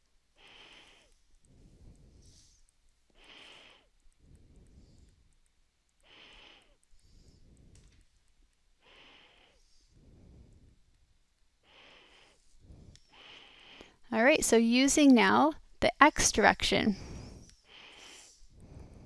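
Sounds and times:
person breathing slowly: 0.3 - 5.4, 6.0 - 8.1, 8.8 - 11.0, 11.6 - 14.1, 16.9 - 19.0.

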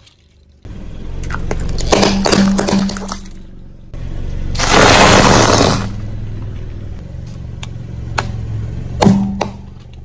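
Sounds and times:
plastic toys cracking under tyre: 1.2 - 3.4.

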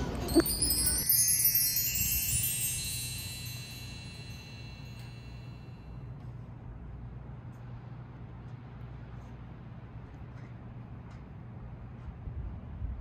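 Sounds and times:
high chimes ringing: 0.0 - 6.1.

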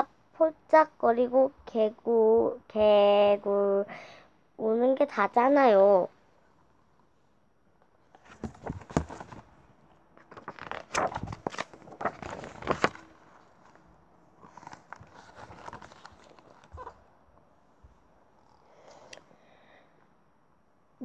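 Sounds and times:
paper pages rustling: 8.1 - 9.6, 10.2 - 17.0.

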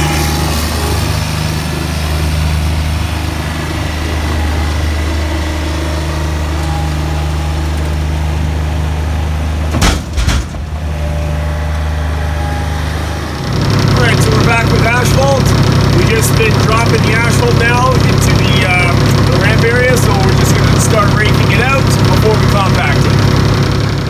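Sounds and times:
diesel engine running: 0.0 - 24.0
asphalt crashing into trailer: 9.7 - 10.9.

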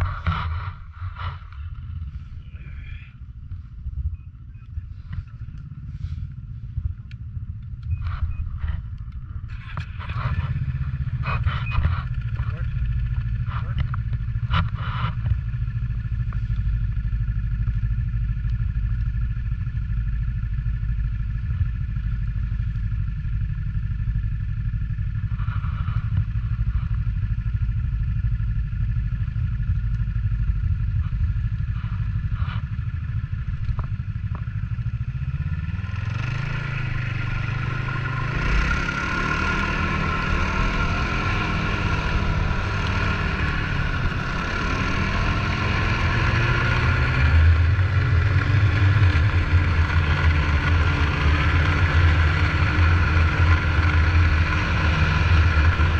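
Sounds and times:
snowmobile engine revving: 35.0 - 55.9.

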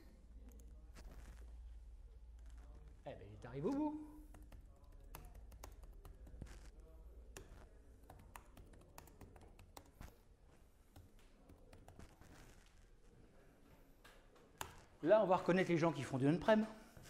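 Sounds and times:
laptop keyboard typing: 4.2 - 10.2, 10.8 - 12.6.

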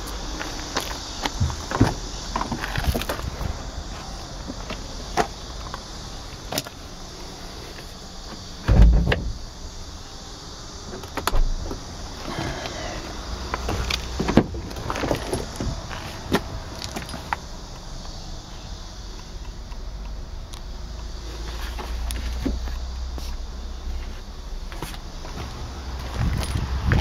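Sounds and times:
clicks and knocks in car cabin: 0.8 - 3.2, 13.6 - 17.2
heavy deep thump: 8.6 - 9.4.

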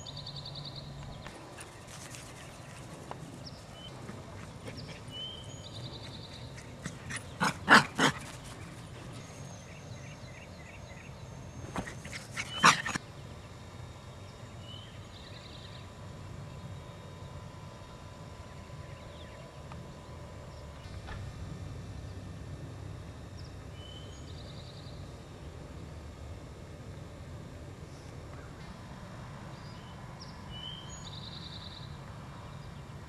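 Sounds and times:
small dog barking: 6.9 - 8.3, 12.4 - 13.0.

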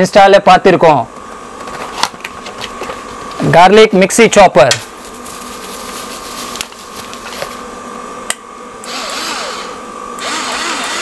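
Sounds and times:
small electric motor whirring: 8.8 - 11.0.

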